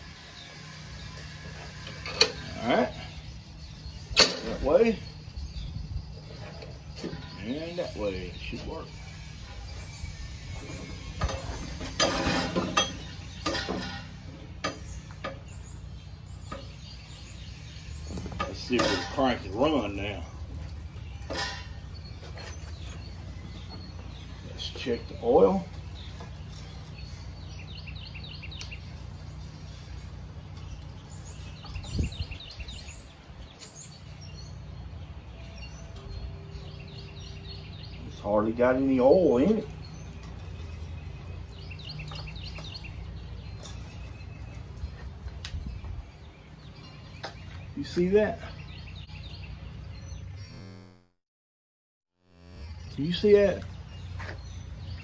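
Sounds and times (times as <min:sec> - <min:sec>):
small birds chirping: 0:00.0 - 0:51.1, 0:52.2 - 0:55.0
metallic knocks and clanks: 0:10.7 - 0:15.6, 0:18.1 - 0:19.8, 0:21.0 - 0:22.6.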